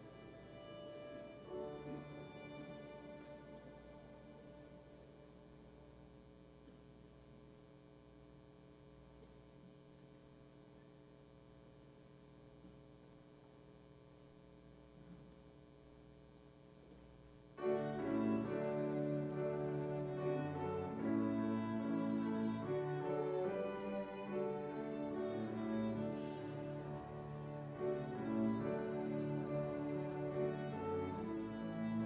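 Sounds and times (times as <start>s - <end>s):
live violin and cello music: 0.0s - 5.4s, 17.6s - 32.0s
faint electrical hum: 0.0s - 32.0s.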